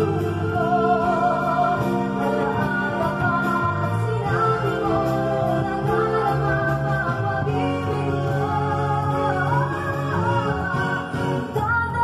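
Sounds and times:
electric bass plucked fingerstyle: 0.0s - 12.0s
recorded song with singing: 0.0s - 12.0s.

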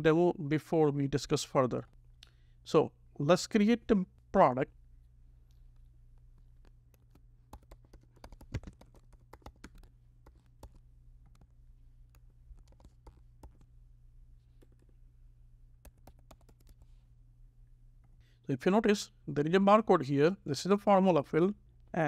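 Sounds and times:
faint keyboard typing: 5.4s - 13.8s, 14.4s - 15.0s, 15.7s - 17.0s.

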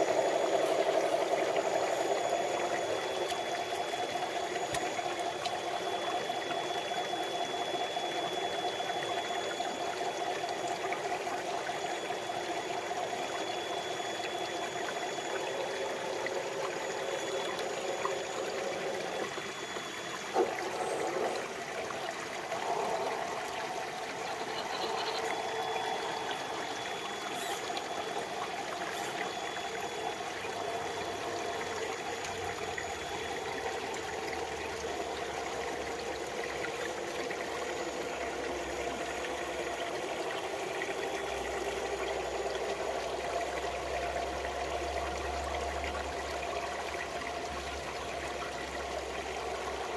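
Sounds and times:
stream trickling over rocks: 0.0s - 49.9s.

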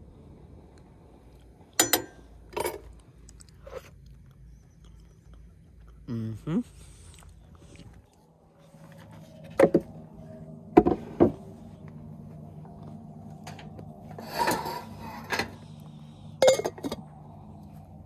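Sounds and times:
metal pot and glass lid clinking: 1.8s - 2.8s, 16.4s - 17.0s.

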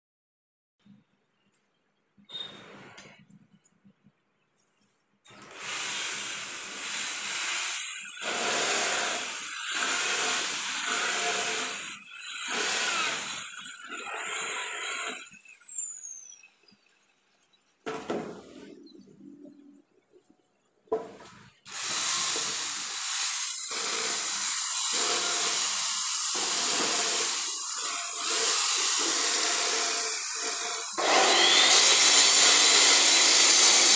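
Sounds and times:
power tool motor whining: 21.7s - 33.9s.

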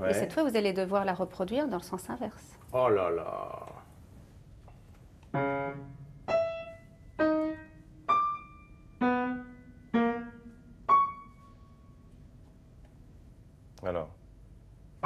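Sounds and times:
upright piano single notes: 5.3s - 12.2s.

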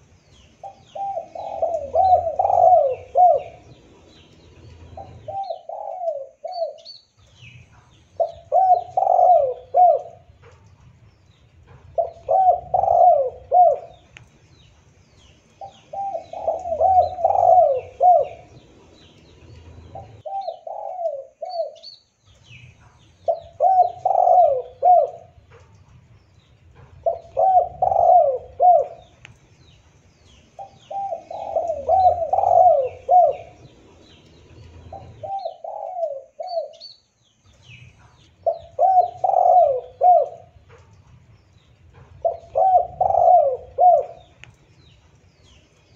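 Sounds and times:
small birds chirping: 0.0s - 45.9s
dove cooing: 0.6s - 6.9s, 8.2s - 10.5s, 11.9s - 14.1s, 15.6s - 21.9s, 23.2s - 25.5s, 26.9s - 29.2s, 30.6s - 36.9s, 38.4s - 40.9s, 42.0s - 44.4s.

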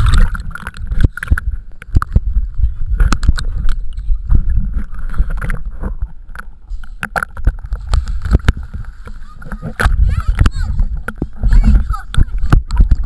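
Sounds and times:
muffled underwater water sloshing: 0.0s - 13.0s.

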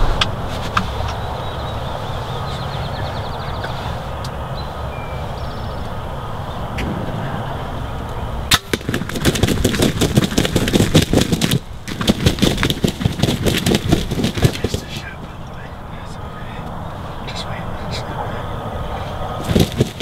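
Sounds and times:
turkey flapping and thrashing: 8.5s - 15.4s, 19.4s - 20.0s.

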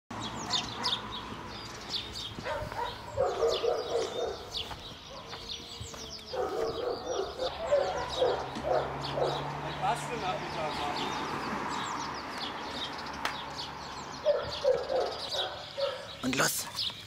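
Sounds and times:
birds chirping: 0.1s - 17.0s
dog barking: 0.5s - 1.1s, 2.4s - 5.4s, 6.3s - 9.4s, 14.2s - 16.2s.

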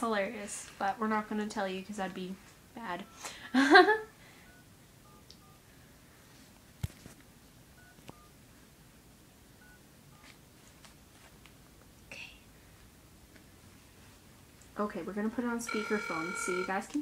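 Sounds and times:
telephone keypad tones: 4.5s - 5.6s, 7.8s - 8.3s, 15.7s - 17.0s.

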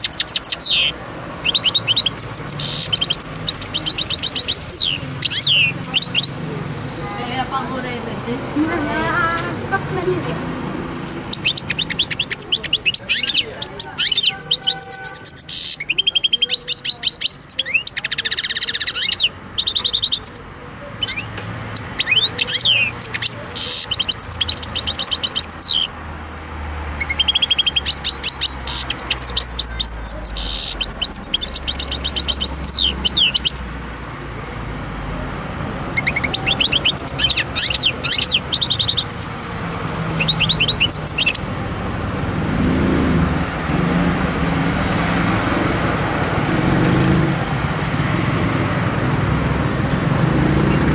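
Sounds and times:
songbird trilling and twittering: 0.0s - 6.5s, 11.0s - 26.0s, 26.9s - 33.8s, 35.8s - 41.6s.

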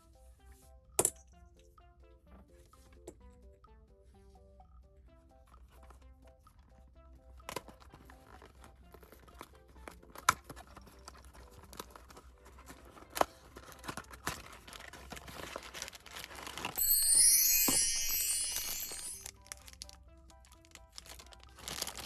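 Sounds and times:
plastic crinkling: 10.4s - 16.8s, 19.2s - 22.0s.

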